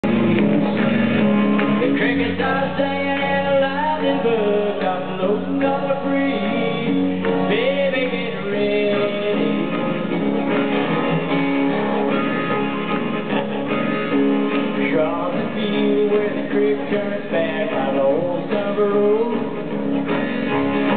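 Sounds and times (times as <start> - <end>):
man singing: 0.0 - 10.5, 14.5 - 20.4
country rock band playing: 0.0 - 20.9
electric guitar: 0.0 - 20.9.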